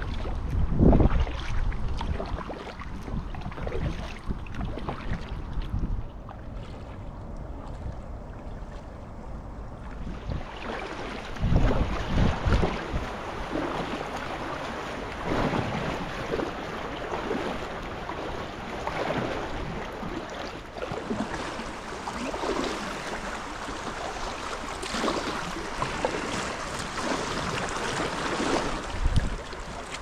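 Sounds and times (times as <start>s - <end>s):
wind on microphone: 0.0s - 30.0s
river water rushing and splashing: 9.8s - 30.0s.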